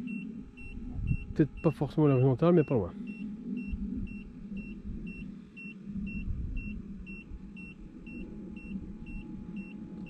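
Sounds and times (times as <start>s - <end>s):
low motor drive rumble: 0.0s - 10.0s.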